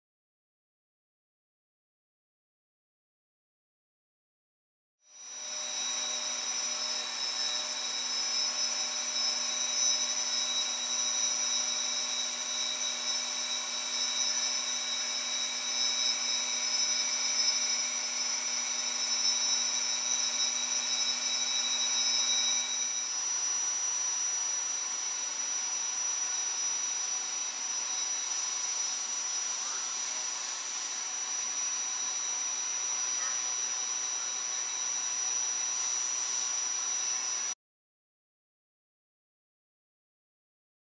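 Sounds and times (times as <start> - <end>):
milling cutter whining: 5.2 - 37.5.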